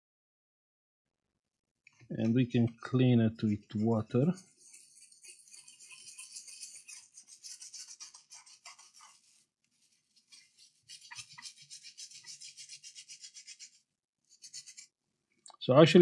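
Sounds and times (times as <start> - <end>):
brush scrubbing circuit board: 3.4 - 15.0.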